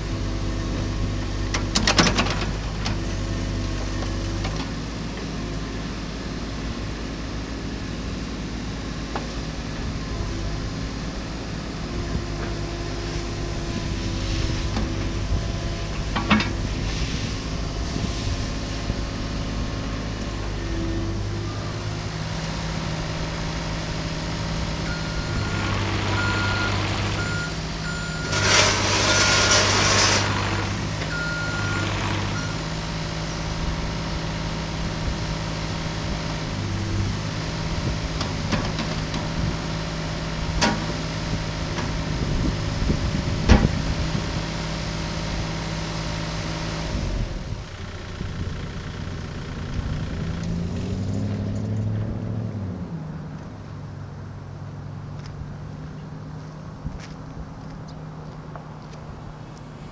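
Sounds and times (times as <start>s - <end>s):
excavator diesel engine running: 0.0s - 59.9s
hydraulics working: 22.8s - 33.4s.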